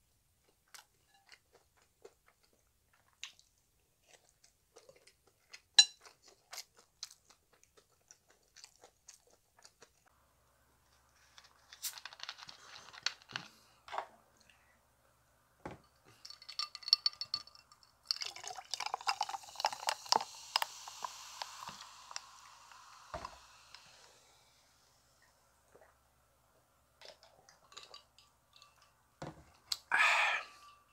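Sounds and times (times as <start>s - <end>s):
mouth sounds and chewing: 0.4s - 10.2s
cola pouring and fizzing: 16.0s - 26.1s.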